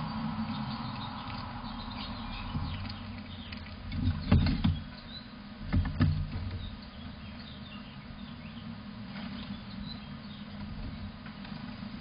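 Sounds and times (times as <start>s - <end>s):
faint bird chirps: 0.0s - 5.4s
outdoor hiss: 0.0s - 7.0s
dull knocks: 3.9s - 4.9s.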